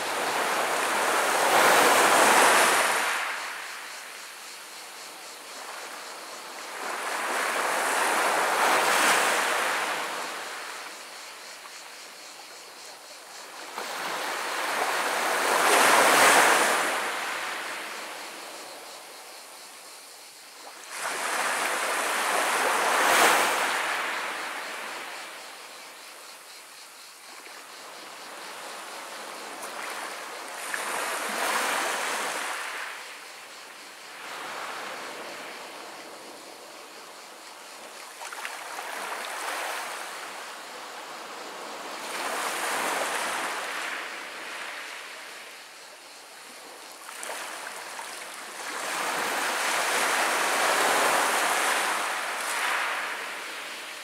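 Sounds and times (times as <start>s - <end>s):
small waves on pebble beach: 0.0s - 3.6s, 46.6s - 54.0s.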